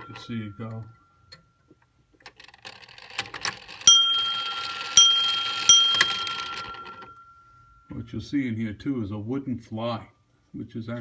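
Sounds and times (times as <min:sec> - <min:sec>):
clock glass bells striking: 0:00.0 - 0:00.8, 0:03.9 - 0:07.9.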